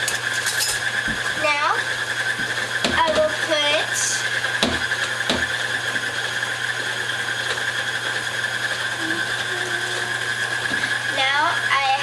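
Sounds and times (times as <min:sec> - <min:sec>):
stand mixer motor humming: 0:00.0 - 0:12.0.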